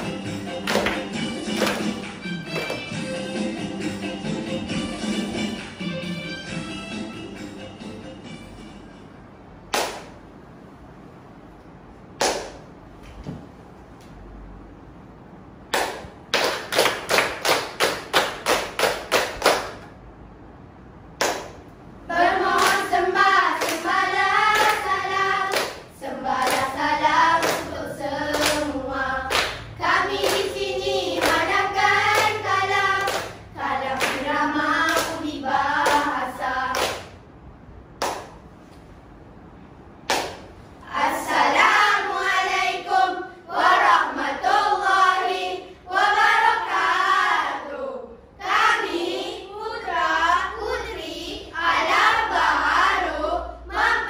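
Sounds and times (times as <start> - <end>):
children clapping in rhythm: 0.0 - 3.0, 9.7 - 10.2, 12.1 - 12.7, 15.7 - 20.0, 21.1 - 37.2, 37.9 - 38.5, 40.0 - 42.8
children chanting and singing: 22.1 - 36.8, 40.8 - 54.0.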